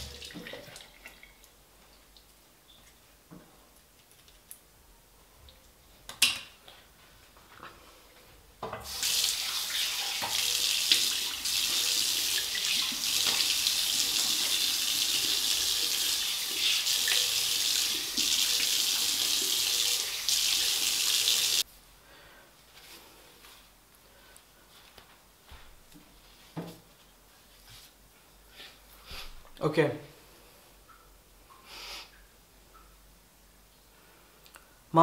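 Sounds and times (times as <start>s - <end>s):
tap water running into sink: 0.0s - 1.2s, 8.8s - 21.6s.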